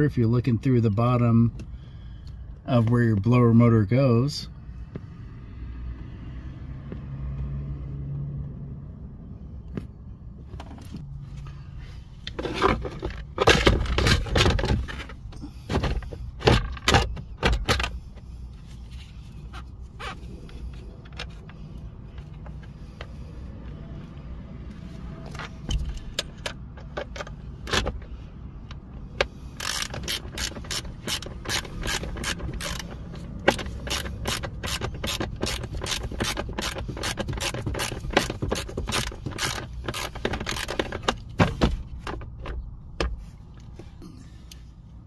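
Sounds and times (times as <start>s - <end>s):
socket ratchet clicking: 28.7s - 41.3s.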